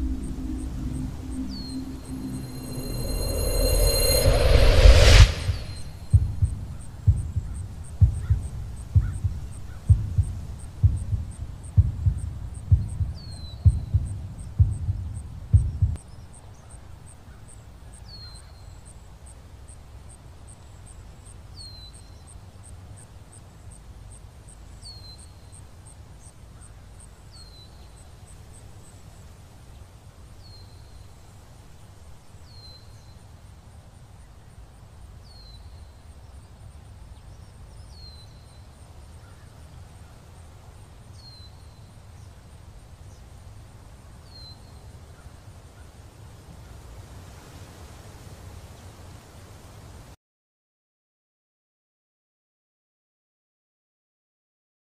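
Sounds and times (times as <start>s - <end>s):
bird falling high note: 0.0s - 4.1s
low steady rumble: 0.0s - 16.0s.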